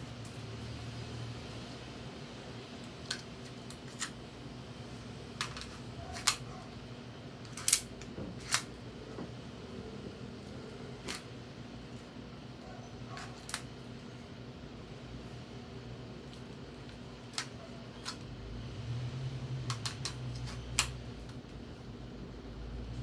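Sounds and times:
pistol slide and magazine clicks: 7.5 - 8.7.

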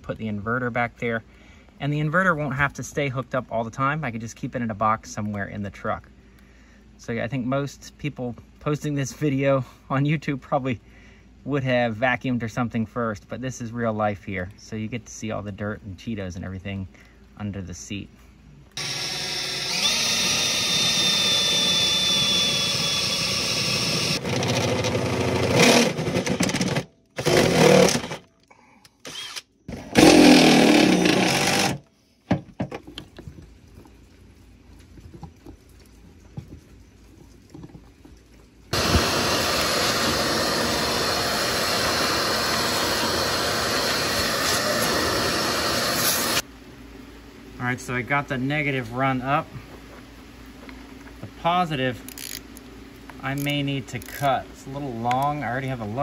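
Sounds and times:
vacuum running: 18.8 - 28.2, 29.7 - 31.8, 38.7 - 46.5
cordless drill whining: 18.8 - 28.3, 29.0 - 31.8, 38.7 - 46.4.

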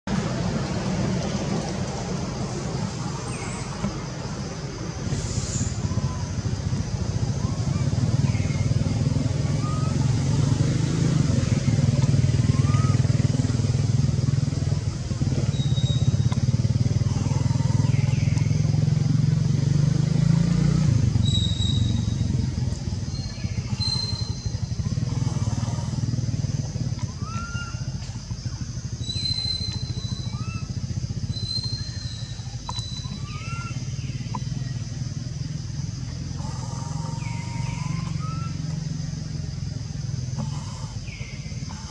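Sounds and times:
engine rumble: 0.0 - 41.9
high hiss: 0.6 - 7.8
high chirps and whistles: 15.5 - 16.4, 21.2 - 22.3, 23.1 - 24.7, 29.0 - 34.3.

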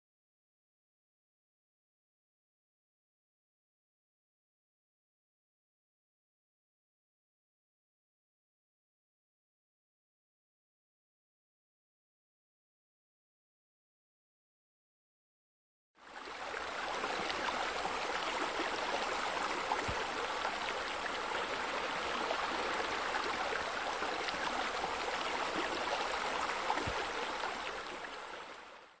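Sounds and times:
running water rushing: 16.0 - 29.0.

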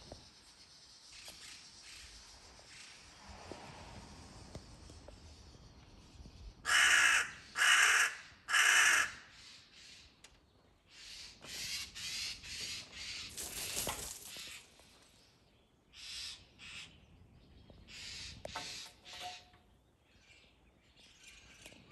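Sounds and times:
crows cawing: 6.7 - 9.4.

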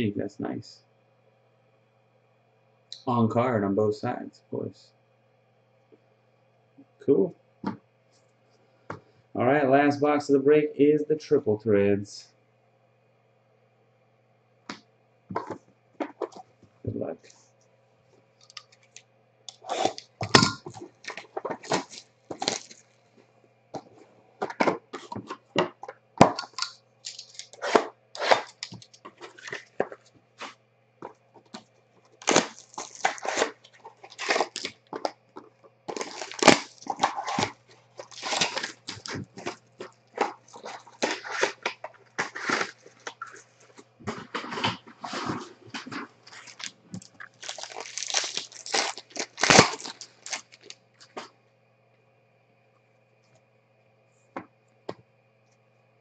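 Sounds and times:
faint steady hum: 0.0 - 56.0
plastic wrap crinkling and tearing: 18.4 - 22.9, 26.4 - 30.5, 32.1 - 35.1, 35.9 - 51.2.

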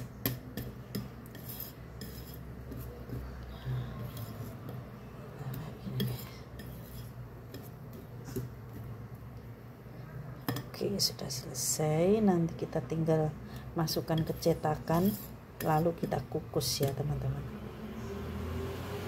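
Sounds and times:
whisk scraping ceramic bowl: 0.0 - 8.8, 13.8 - 17.2.

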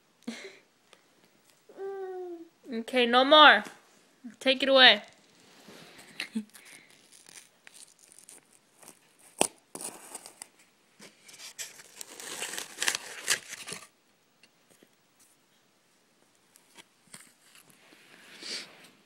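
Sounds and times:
styrofoam and cardboard crinkling: 6.4 - 13.9
styrofoam snapping: 7.0 - 10.5, 11.7 - 13.9.

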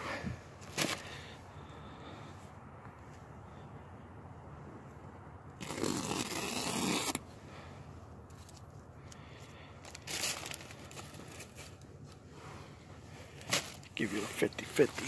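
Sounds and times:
scraping rustle of handling: 9.8 - 15.0.

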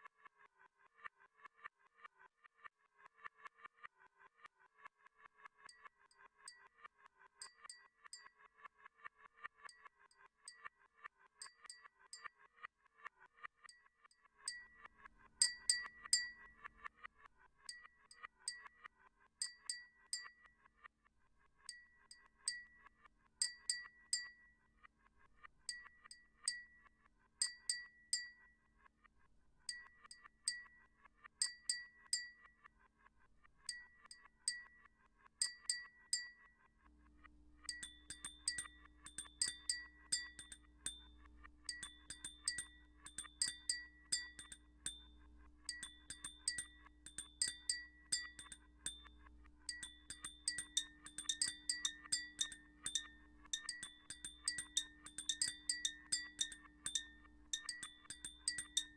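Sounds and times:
high ringing tone: 37.6 - 58.9.

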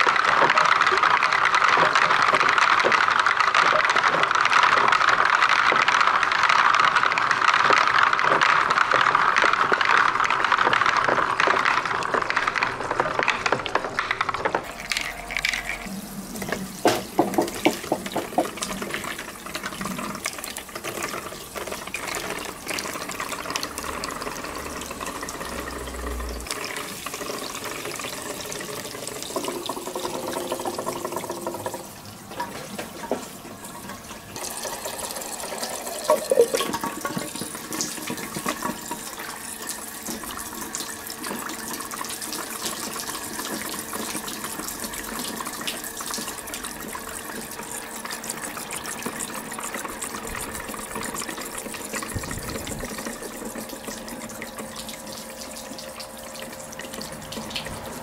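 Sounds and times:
plastic balls clicking together: 0.0 - 15.9.

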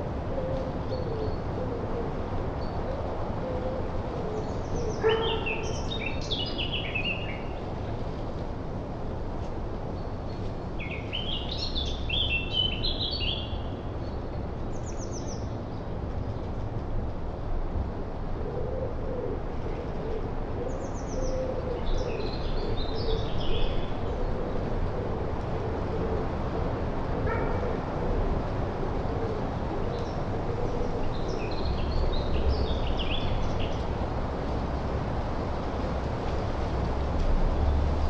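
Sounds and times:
songbird singing: 3.8 - 7.7, 10.0 - 15.9, 20.0 - 24.8, 29.9 - 34.0.

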